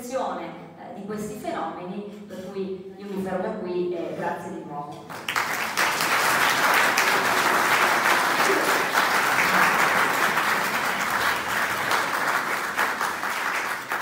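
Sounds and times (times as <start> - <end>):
audience applauding: 5.1 - 14.0.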